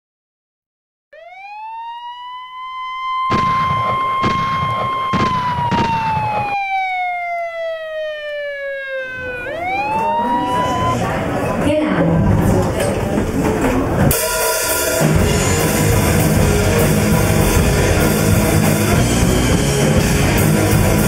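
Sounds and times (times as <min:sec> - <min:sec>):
police siren wailing: 0:01.2 - 0:11.4
gunshots: 0:03.3 - 0:06.8.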